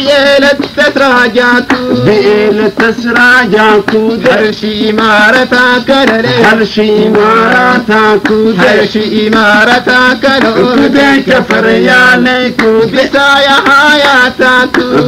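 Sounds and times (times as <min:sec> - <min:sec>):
person singing: 0:00.0 - 0:15.0.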